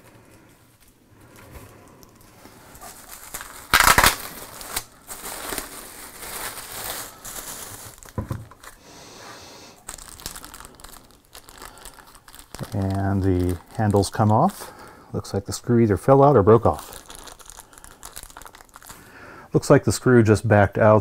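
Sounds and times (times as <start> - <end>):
plastic bag crinkling: 2.3 - 8.8, 9.7 - 19.2.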